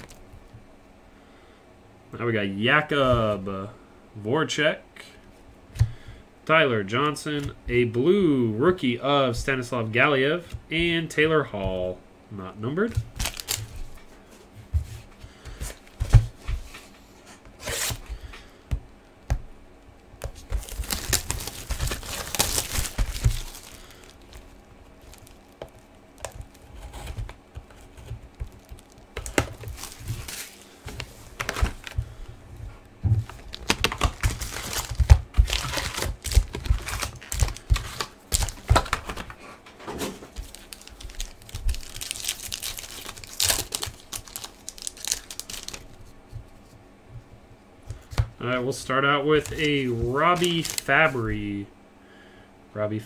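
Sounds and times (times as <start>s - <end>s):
foil pack tearing: 13.1s - 13.7s, 20.4s - 32.0s, 33.2s - 39.3s, 40.3s - 45.8s, 49.4s - 51.1s.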